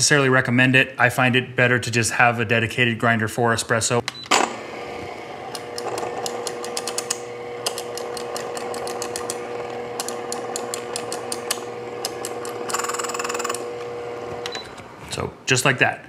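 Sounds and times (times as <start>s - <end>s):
grinder motor hum: 4.5s - 15.4s
detent clicks: 5.5s - 12.6s.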